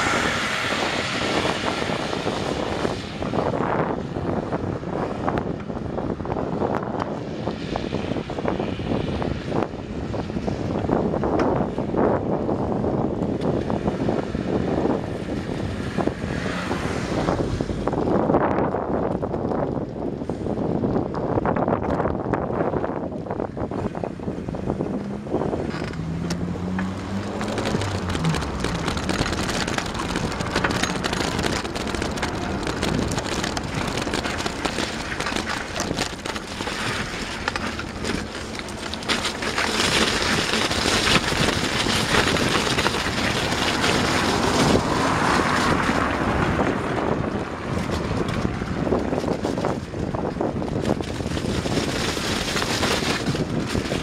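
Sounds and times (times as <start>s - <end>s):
car passing: 0.0s - 3.8s, 24.4s - 38.8s, 39.7s - 49.1s
wind buffeting microphone: 0.0s - 54.0s.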